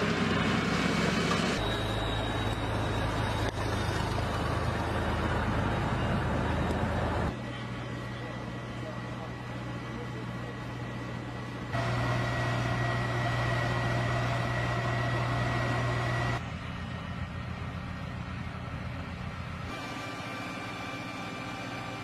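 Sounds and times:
low machine hum: 0.0 - 22.0
thin high whine: 1.4 - 5.2.

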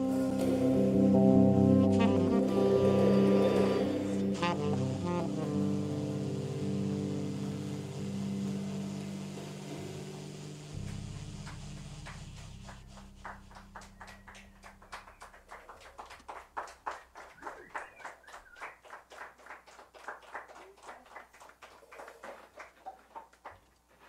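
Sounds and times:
electric bass note ringing: 0.0 - 15.6
audience clapping: 10.8 - 24.0.

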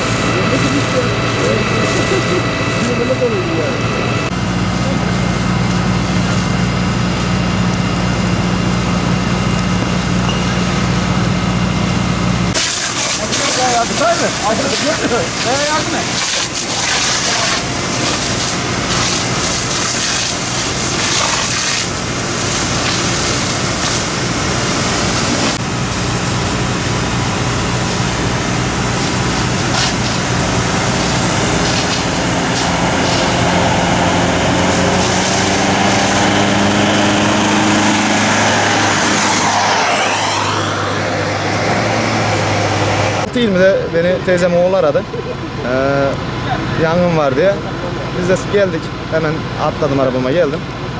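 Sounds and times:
diesel engine throbbing: 0.0 - 50.9
hose jet spraying water: 12.5 - 43.3.

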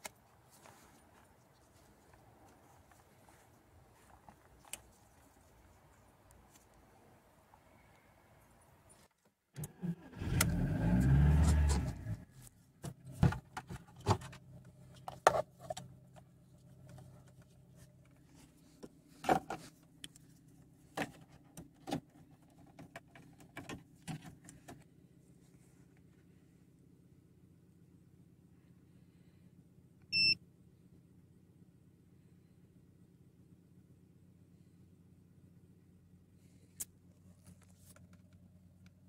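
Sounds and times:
car engine starting and idling: 9.5 - 19.2.

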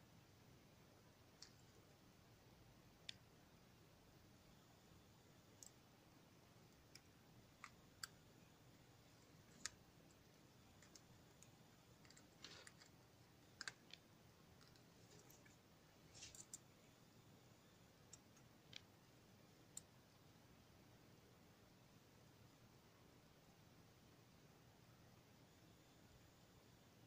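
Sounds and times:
small clicks and taps: 9.5 - 16.7.

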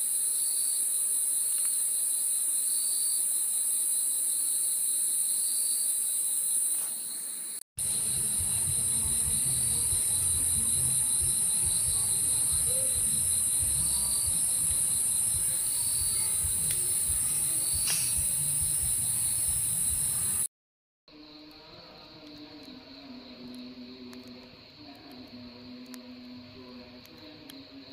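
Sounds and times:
crickets trilling: 0.0 - 20.5, 21.1 - 27.9
lower pulsing insect: 0.0 - 20.5.

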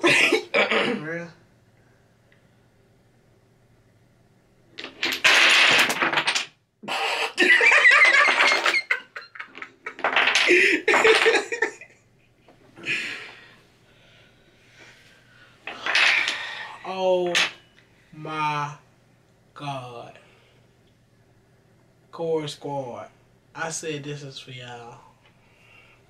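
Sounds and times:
wooden blocks clattering down: 4.8 - 6.6, 7.7 - 11.7, 15.7 - 16.5
people laughing: 7.4 - 11.9.

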